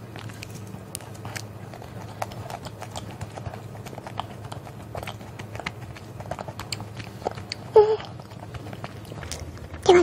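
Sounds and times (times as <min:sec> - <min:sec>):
chewing wafer ice cream: 0:00.0 - 0:10.0.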